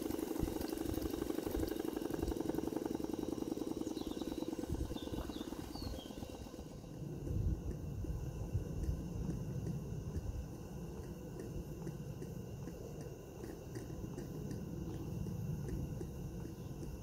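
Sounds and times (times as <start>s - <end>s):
model steam engine ticking: 0.0s - 6.8s
low steady rumble: 0.0s - 17.0s.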